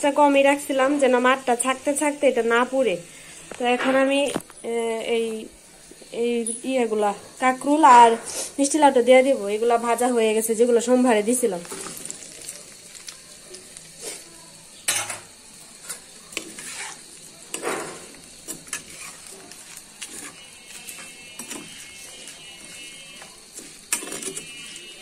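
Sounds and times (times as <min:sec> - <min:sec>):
faint frying hiss: 0:00.0 - 0:25.0
metal spatula scraping frying pan: 0:16.4 - 0:25.0.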